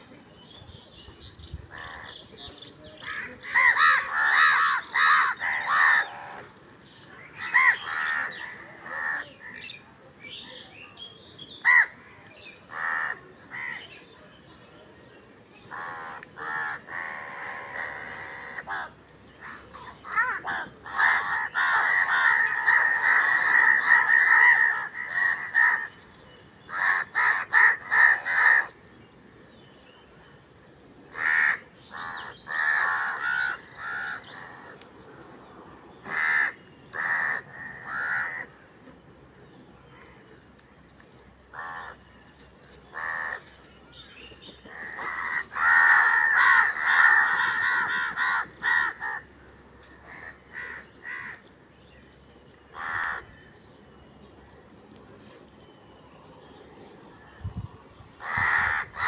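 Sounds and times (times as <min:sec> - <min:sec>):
crows cawing: 0:03.0 - 0:06.6, 0:07.4 - 0:09.6, 0:12.7 - 0:13.9, 0:15.7 - 0:26.0, 0:26.7 - 0:28.8, 0:31.1 - 0:34.8, 0:36.0 - 0:38.6, 0:41.5 - 0:42.1, 0:42.9 - 0:43.5, 0:44.7 - 0:51.6, 0:52.7 - 0:53.6, 0:58.2 - 0:59.0.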